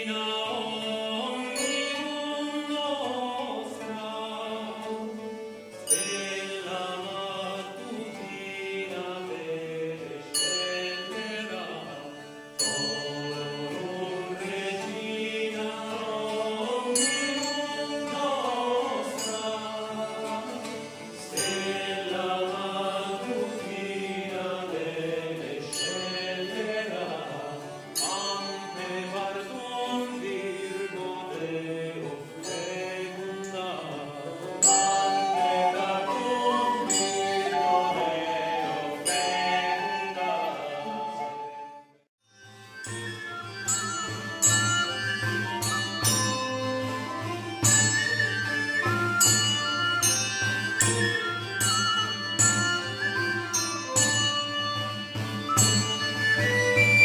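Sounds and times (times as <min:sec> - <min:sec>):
man singing: 0:00.0 - 0:05.2, 0:06.0 - 0:41.5
bowed fiddle: 0:00.0 - 0:57.0
sharp percussive accents: 0:42.8 - 0:57.0.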